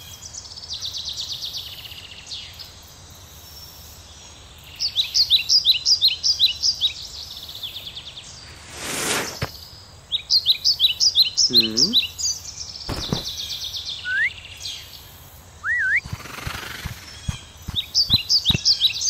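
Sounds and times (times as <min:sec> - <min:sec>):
birds chirping: 0:00.0 - 0:19.0
insect trill: 0:01.7 - 0:19.0
rushing whoosh: 0:08.5 - 0:09.5.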